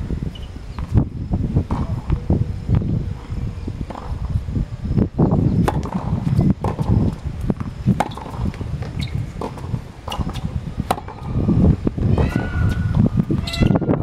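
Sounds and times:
wind on microphone: 0.0s - 14.0s
racket strikes and ball bounces: 1.7s - 2.2s, 5.6s - 11.3s
footsteps on hard court: 5.7s - 10.6s.

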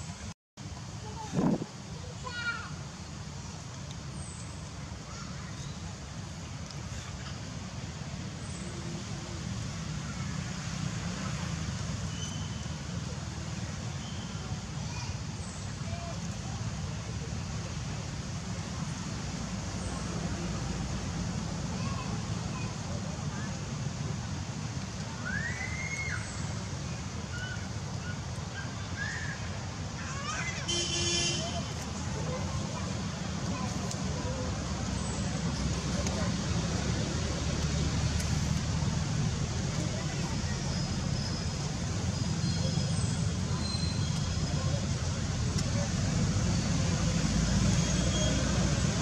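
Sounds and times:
faint hiss: 0.0s - 49.0s
thin whistled calls: 12.1s - 12.8s, 25.2s - 26.5s, 27.3s - 29.4s, 40.3s - 44.8s, 47.8s - 48.5s.

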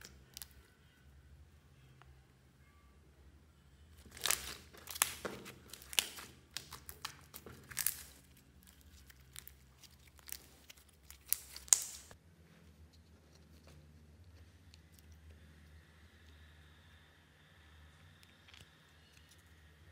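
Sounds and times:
slime crackling and popping: 4.0s - 12.2s.

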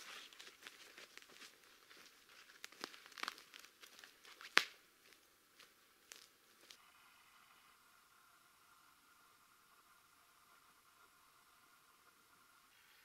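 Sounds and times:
footsteps crunching pine needles: 0.0s - 6.8s
twig snapping: 1.9s - 4.8s, 6.1s - 6.8s.

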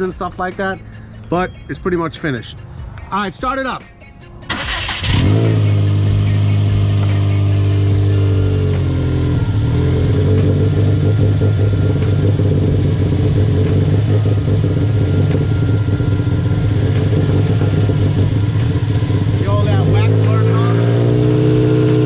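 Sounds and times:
car engine idling: 0.0s - 22.0s.

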